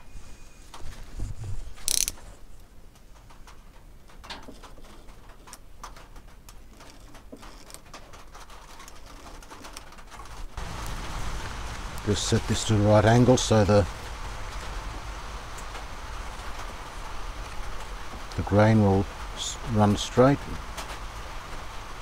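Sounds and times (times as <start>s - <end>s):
small clicks: 1.8s - 2.2s.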